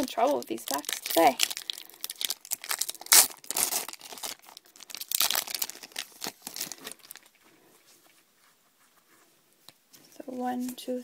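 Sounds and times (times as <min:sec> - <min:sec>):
foil wrapper crinkling and tearing: 0:00.0 - 0:07.4.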